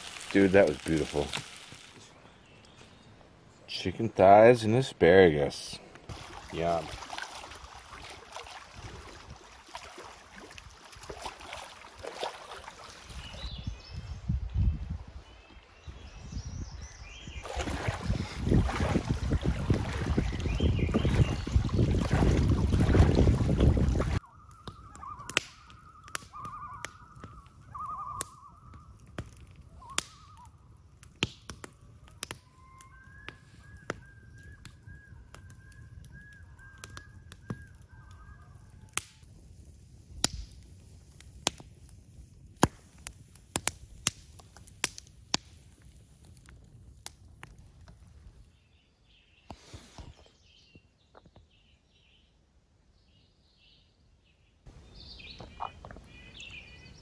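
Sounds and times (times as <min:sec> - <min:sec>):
campfire crackling and popping: 0:00.0 - 0:03.3, 0:05.8 - 0:13.4, 0:17.4 - 0:48.5
bird calling in wavering notes: 0:24.2 - 0:28.8.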